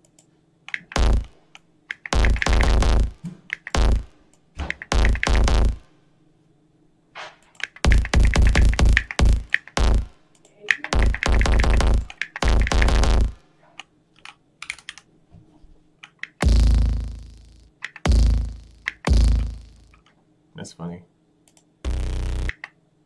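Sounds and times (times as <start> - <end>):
distorted electronic bass hits: 1.0 - 1.4, 2.1 - 5.9, 7.2 - 10.2, 10.9 - 13.4, 16.4 - 20.0, 21.9 - 22.5.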